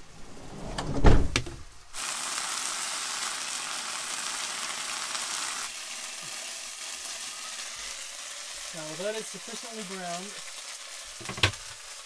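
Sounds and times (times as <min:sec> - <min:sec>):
van door shutting thump: 0:00.8 - 0:01.5
chicken sizzling in a frying pan: 0:01.9 - 0:12.0.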